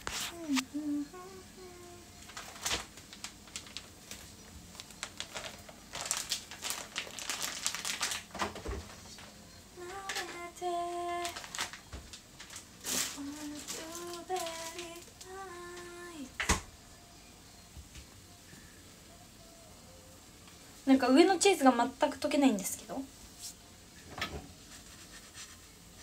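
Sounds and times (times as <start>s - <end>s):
woman humming a tune: 0.3s - 2.3s, 9.7s - 11.5s, 13.2s - 16.4s, 19.0s - 20.3s
rustling: 2.2s - 15.9s.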